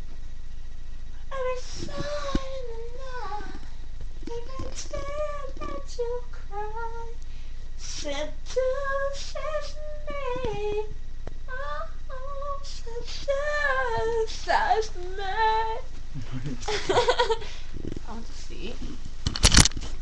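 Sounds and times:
woman singing wordlessly: 1.3s - 7.2s, 7.8s - 15.9s.

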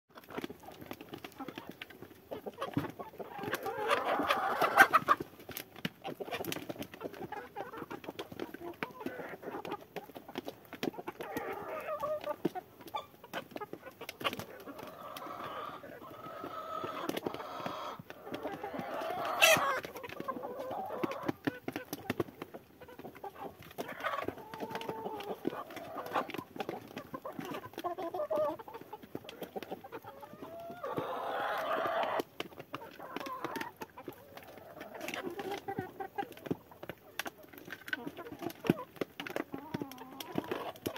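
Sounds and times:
chickens clucking and calling: 0.1s - 40.9s.

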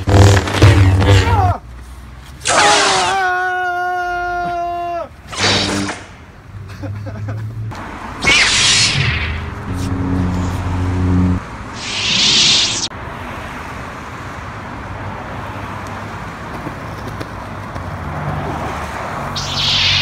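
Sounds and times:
road traffic noise: 0.0s - 3.4s, 5.0s - 20.0s
lightsaber toy swoosh: 5.3s - 6.0s, 8.2s - 12.9s, 19.3s - 20.0s
low electric hum: 8.9s - 11.8s.

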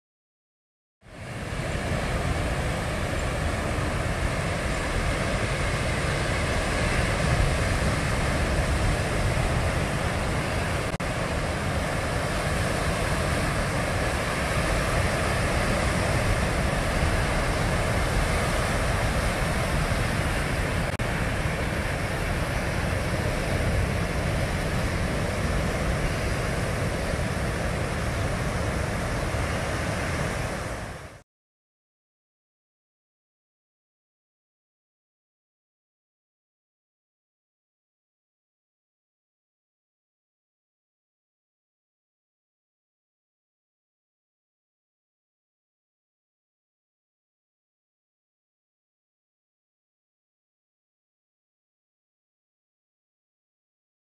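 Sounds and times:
surf breaking on rocks: 1.4s - 31.2s.

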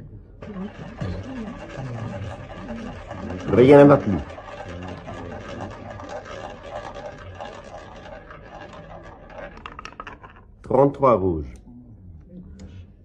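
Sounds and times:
roulette ball spinning: 0.4s - 10.6s.

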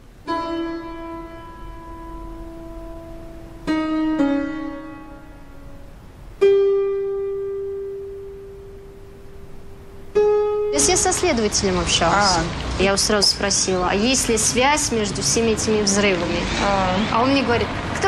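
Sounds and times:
single piano notes ringing: 0.2s - 11.3s.

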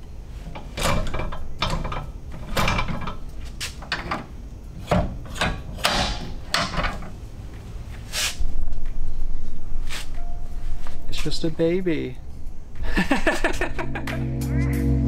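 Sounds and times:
metallic clacks and rattles: 0.5s - 7.2s.

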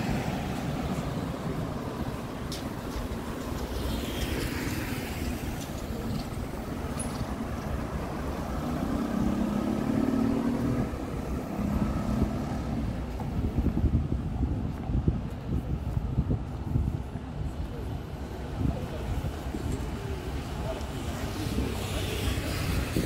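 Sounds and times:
traffic rumble: 0.0s - 23.0s
vehicle passing by: 7.8s - 13.1s.

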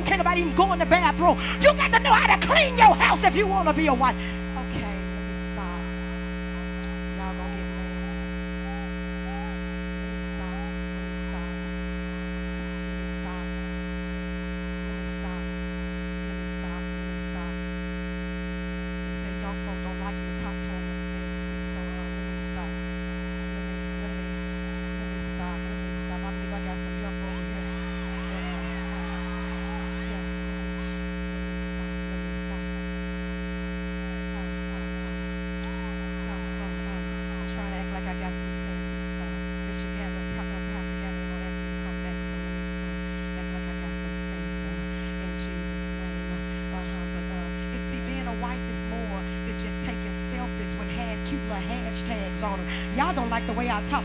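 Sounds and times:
electrical mains hum: 0.0s - 54.0s
faint crowd voices: 23.7s - 32.9s.

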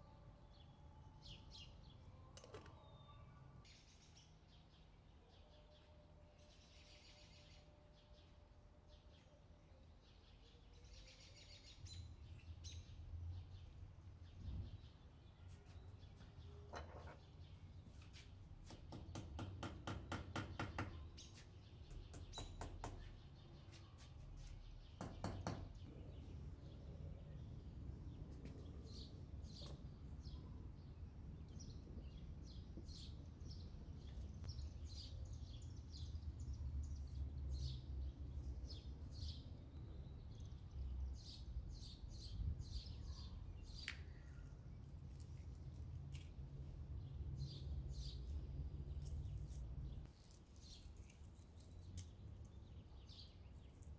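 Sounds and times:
small birds chirping: 0.0s - 53.9s
low steady background rumble: 25.8s - 53.9s.

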